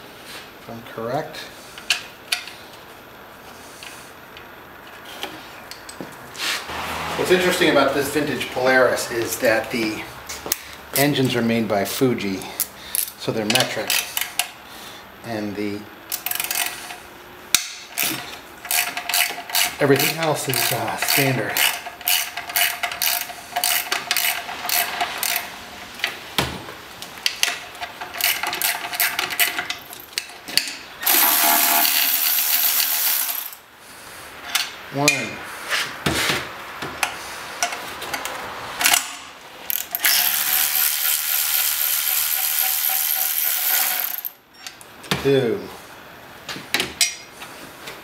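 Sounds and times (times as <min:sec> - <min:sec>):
cordless ratchet motor spinning: 0:31.0 - 0:33.6, 0:39.7 - 0:44.3.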